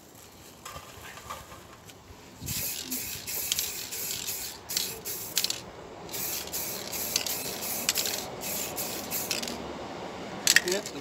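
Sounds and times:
aerosol spray can hissing: 2.5s - 9.6s.

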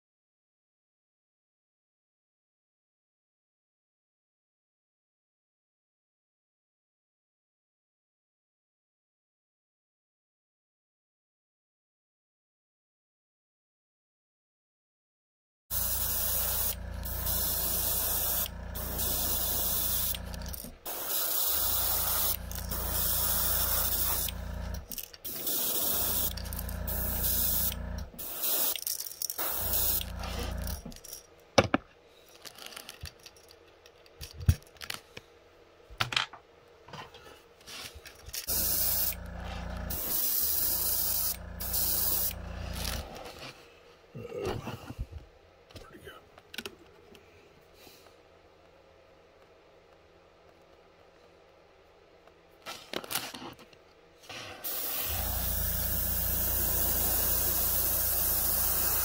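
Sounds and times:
airbrush air hiss: 15.7s - 28.8s, 29.4s - 30.8s, 38.4s - 43.0s, 54.5s - 59.0s.

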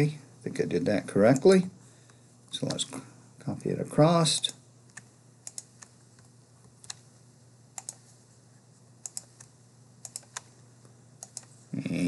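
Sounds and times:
faint steady hum: 0.0s - 12.0s
computer key and mouse clicks: 4.9s - 6.0s, 7.8s - 8.0s, 9.0s - 10.5s, 11.2s - 11.5s.

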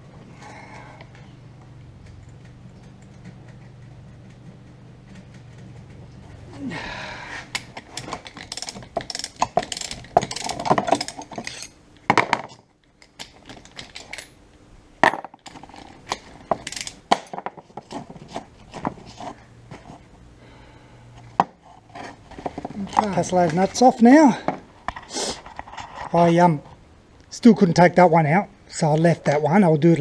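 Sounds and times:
socket ratchet clicking: 7.5s - 11.8s, 16.1s - 17.3s
metal clinks and knocks: 7.5s - 14.4s, 15.0s - 19.3s.

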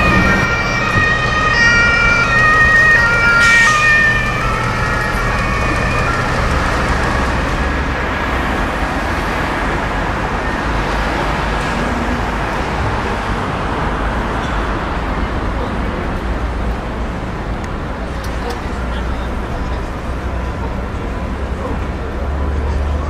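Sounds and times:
emergency vehicle siren: 0.0s - 14.2s
city street traffic: 0.0s - 23.0s.

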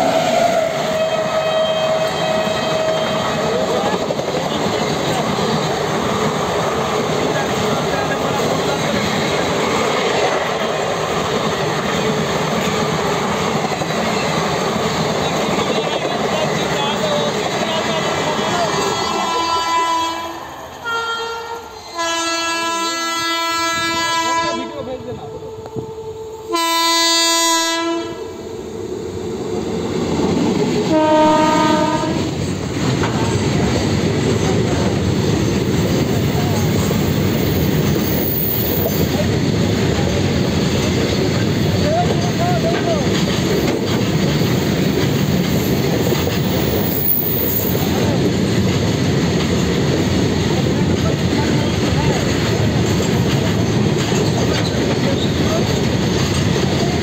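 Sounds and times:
train wheels rushing on rails: 0.0s - 57.0s
locomotive horn blast: 0.9s - 3.5s, 19.0s - 28.4s, 30.9s - 32.3s
wheels clattering over rail joints: 50.9s - 57.0s.

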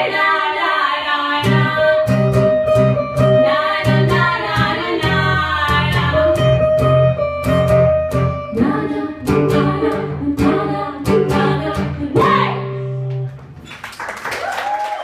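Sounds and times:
women singing: 0.0s - 2.4s, 3.2s - 6.6s, 8.5s - 13.0s
audience applause: 13.6s - 15.0s.

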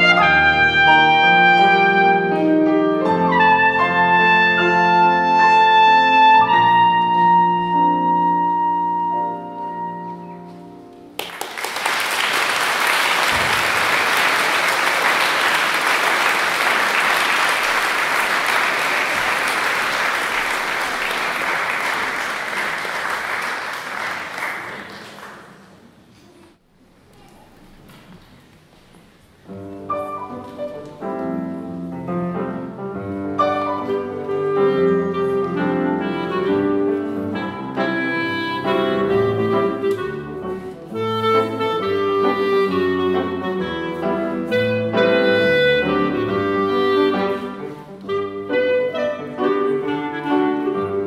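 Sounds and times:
trumpet: 0.0s - 10.4s, 33.3s - 51.0s
grand piano: 0.0s - 26.1s, 29.0s - 51.0s
audience applauding: 11.2s - 26.0s.

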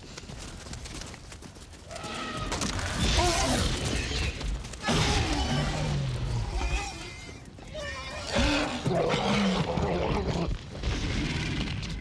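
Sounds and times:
rapid pattering footfalls: 0.0s - 3.0s.

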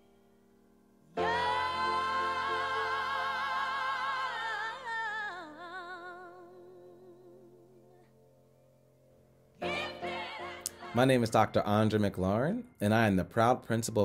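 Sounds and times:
solo voice singing with vibrato: 1.2s - 8.0s, 9.6s - 11.3s.

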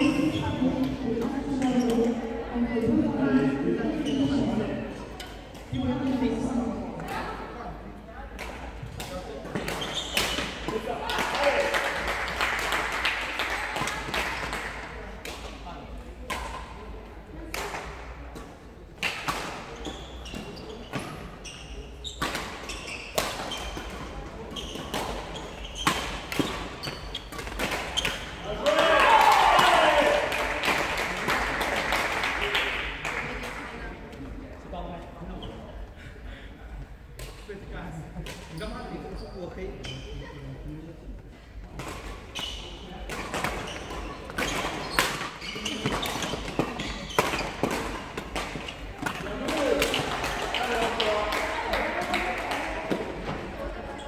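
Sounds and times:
shoes squeaking on court: 0.0s - 0.9s, 3.9s - 6.2s, 9.5s - 10.8s, 19.6s - 28.5s, 38.4s - 40.2s, 42.0s - 49.8s
rackets hitting shuttlecock: 24.8s - 31.8s, 43.0s - 53.5s.

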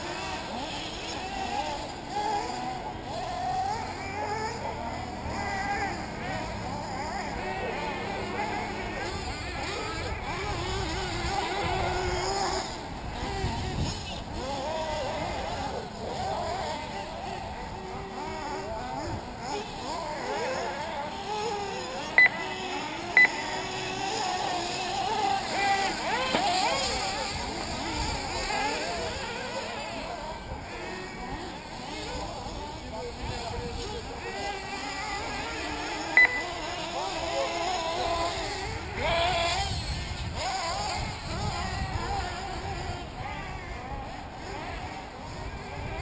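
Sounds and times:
model buggy engines whining: 0.0s - 46.0s
short electronic beeps: 22.2s - 22.6s, 23.2s - 23.6s, 36.2s - 36.6s.

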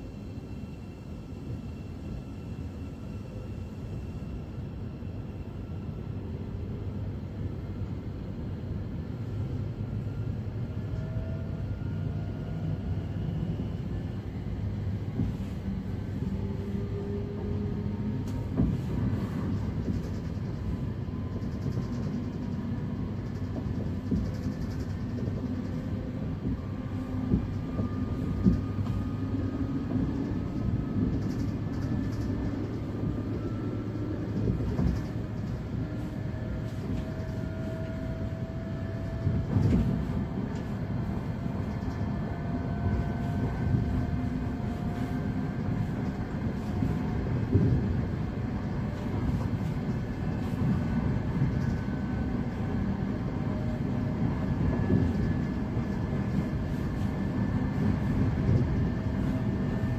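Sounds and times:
wheel and track rumble: 14.7s - 42.2s, 42.8s - 59.9s.

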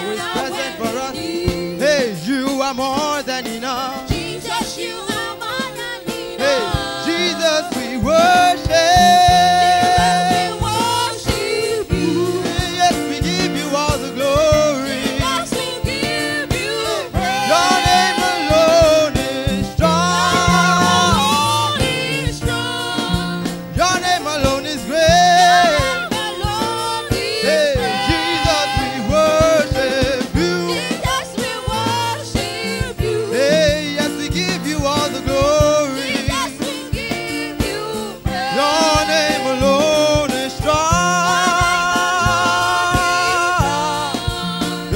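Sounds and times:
keyboard accompaniment: 0.0s - 44.9s
voices singing a praise chorus: 0.0s - 44.9s
bass line: 6.4s - 31.3s, 38.4s - 44.9s.

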